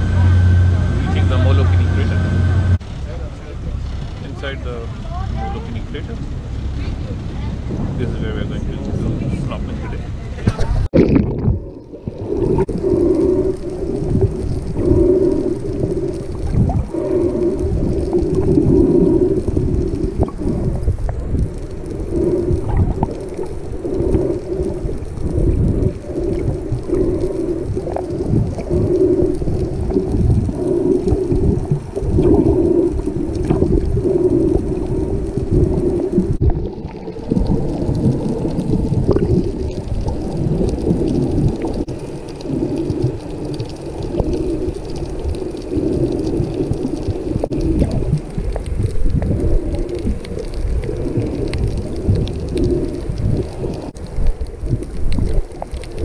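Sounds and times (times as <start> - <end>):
pulsing hum: 0.0 - 8.4
underwater rumble of moving water: 0.0 - 56.0
faint clicks: 11.7 - 56.0.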